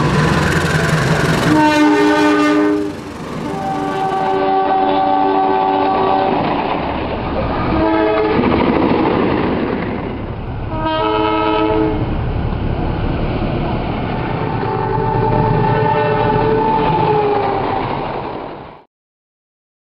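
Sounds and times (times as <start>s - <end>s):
train rumbling on rails: 0.0s - 18.9s
locomotive horn blasts: 1.4s - 6.5s, 7.7s - 8.5s, 10.7s - 12.1s, 14.6s - 16.8s.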